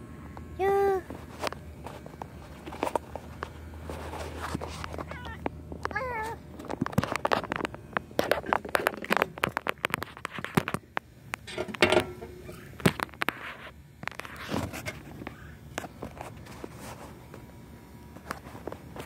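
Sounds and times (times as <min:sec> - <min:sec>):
phone handling scrapes and knocks: 0:06.6 - 0:17.1.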